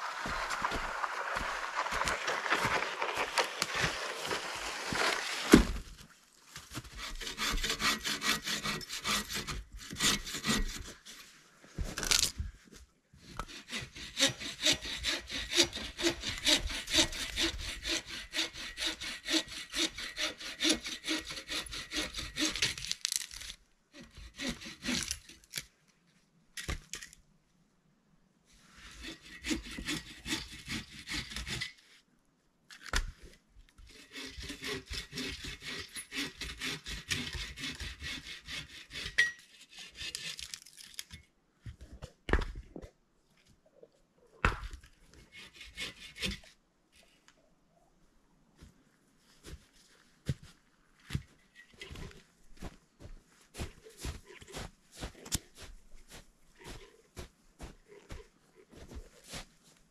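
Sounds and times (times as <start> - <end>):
hand saw cutting wood: 0.1 - 5.8, 6.8 - 11.2, 13.2 - 25.5, 28.8 - 31.8, 33.8 - 40.7, 45.2 - 46.6.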